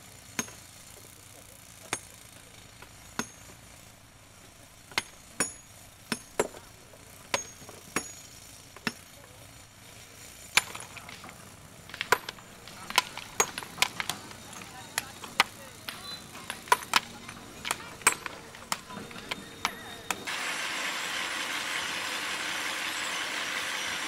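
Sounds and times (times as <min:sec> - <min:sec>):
sledgehammers striking stone: 0:00.3 - 0:00.7, 0:01.9 - 0:02.2, 0:02.8 - 0:03.6, 0:04.8 - 0:09.2, 0:10.4 - 0:20.3
hand hammer chipping stone: 0:02.8 - 0:03.5, 0:04.9 - 0:06.7, 0:07.3 - 0:08.2, 0:10.5 - 0:11.3, 0:11.9 - 0:20.3.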